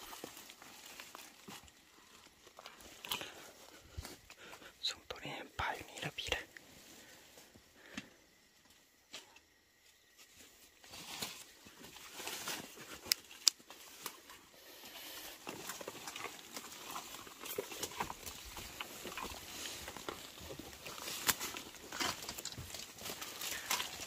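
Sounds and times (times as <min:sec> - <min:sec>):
dry leaves and twigs crackling: 0:00.0 - 0:24.0.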